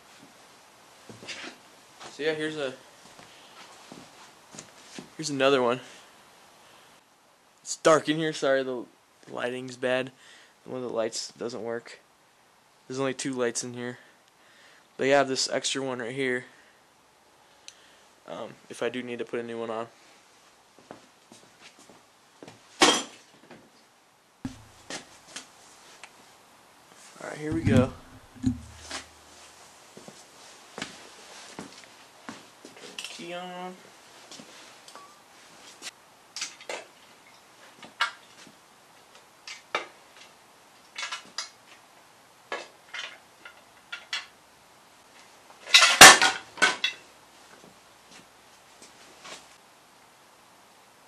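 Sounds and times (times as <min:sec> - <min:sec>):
dull thump: 0:24.5 - 0:24.8, 0:27.5 - 0:29.1
metallic clank: 0:27.5 - 0:29.1.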